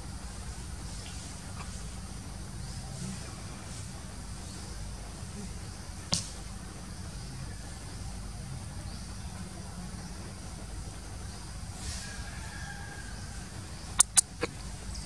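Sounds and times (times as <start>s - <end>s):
steady low rumble: 0.0s - 15.0s
sharp snap: 6.1s - 6.4s, 14.0s - 14.5s.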